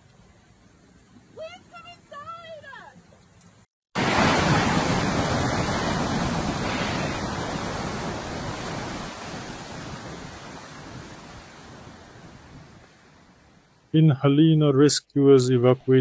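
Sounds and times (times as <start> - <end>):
rushing floodwater of a river: 4.0 - 13.5.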